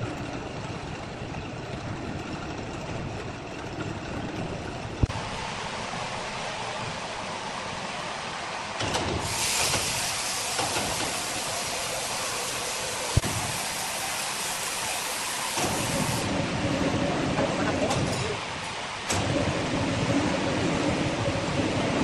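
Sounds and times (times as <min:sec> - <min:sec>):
heavy machinery running: 0:00.0 - 0:22.0
loud even hiss: 0:05.1 - 0:16.4.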